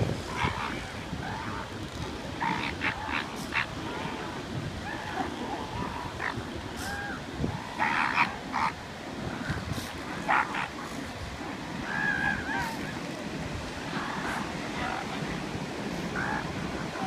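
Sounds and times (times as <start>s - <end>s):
surf washing: 0.0s - 17.0s
elephant seals rasping calls: 2.4s - 4.2s, 4.8s - 8.8s, 10.0s - 11.1s
elephant seals yelping: 2.4s - 4.2s, 4.8s - 8.8s, 10.2s - 11.0s.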